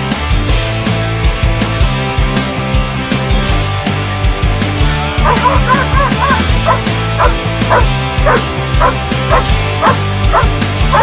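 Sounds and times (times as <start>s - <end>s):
background music with beat: 0.0s - 11.0s
dog barking: 5.2s - 11.0s.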